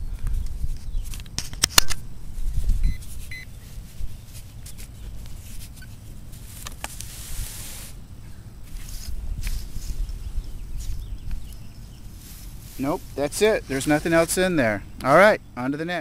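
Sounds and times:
hand scraping through soil: 2.5 - 8.0, 8.6 - 14.7.

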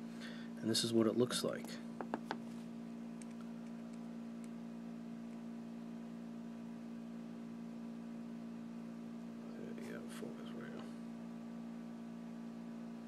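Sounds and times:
background hum: 0.0 - 13.0.

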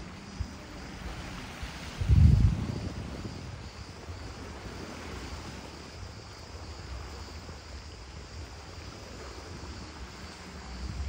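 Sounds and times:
small waves lapping against rocks: 0.0 - 11.0
wind on microphone: 0.0 - 11.0.

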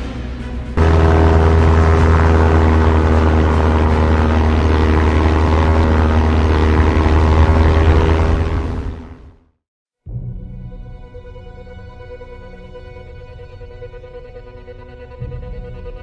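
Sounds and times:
propeller airplane engine drone: 0.0 - 9.5.

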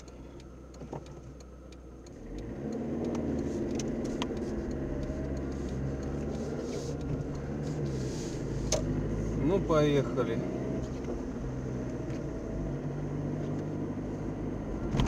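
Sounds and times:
faint clicks: 0.0 - 7.9
car engine from inside cabin: 0.0 - 15.0.

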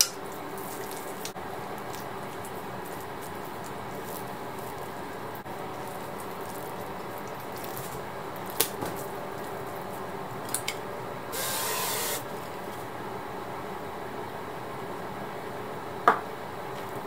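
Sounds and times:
spray can hissing: 11.3 - 12.3.

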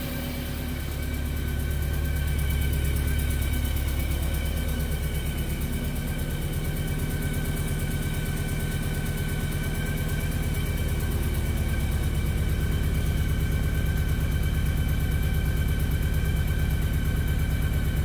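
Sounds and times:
faint steady whine: 0.0 - 8.0
car engine idling: 0.0 - 18.0.

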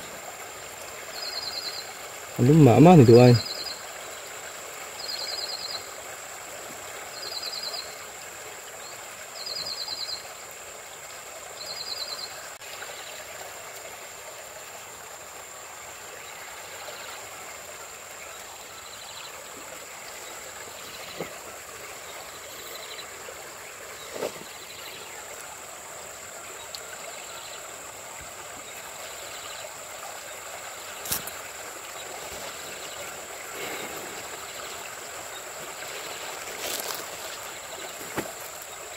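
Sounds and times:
stream flowing: 0.0 - 38.9.

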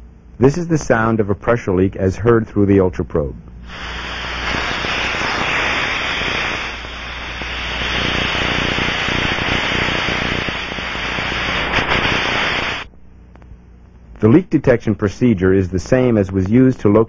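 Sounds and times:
rushing hiss of gas leak: 3.6 - 12.9.

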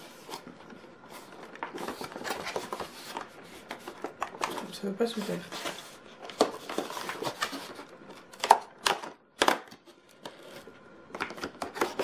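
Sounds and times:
cardboard rustling and scraping: 0.0 - 8.6, 10.2 - 10.8
sharp cardboard cracks: 8.3 - 9.8.

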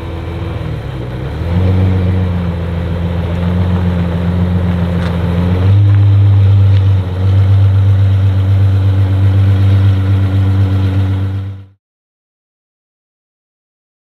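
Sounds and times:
car engine running: 0.0 - 11.8.

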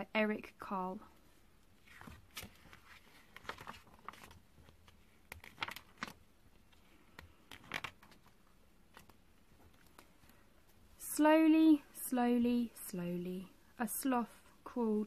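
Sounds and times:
book pages turning: 1.7 - 10.4.

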